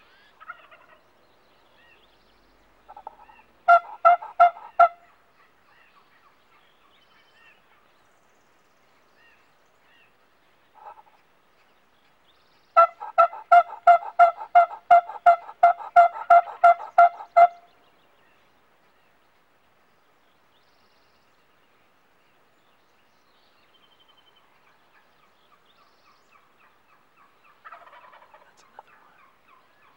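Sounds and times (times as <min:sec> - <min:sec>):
wild turkey yelps: 0:00.1 - 0:01.0, 0:02.9 - 0:05.2, 0:10.8 - 0:11.2, 0:12.8 - 0:17.6, 0:26.6 - 0:29.9
faint short turkey calls: 0:10.8 - 0:11.2, 0:26.3 - 0:29.9.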